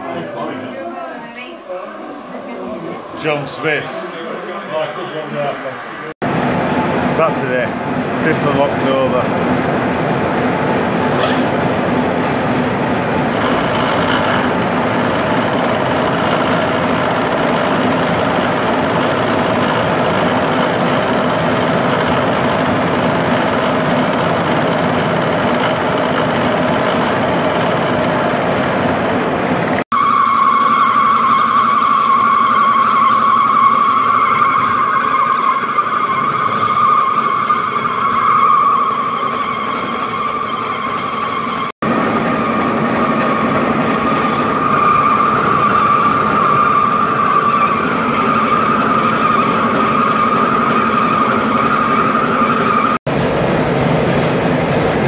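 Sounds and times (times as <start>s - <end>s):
high machine whine: 0.0s - 55.0s
milling cutter cutting metal: 13.3s - 29.0s.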